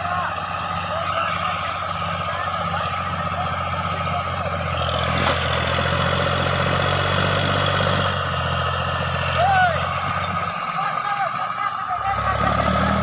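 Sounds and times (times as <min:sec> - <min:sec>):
diesel tractor engine running: 0:00.0 - 0:13.0.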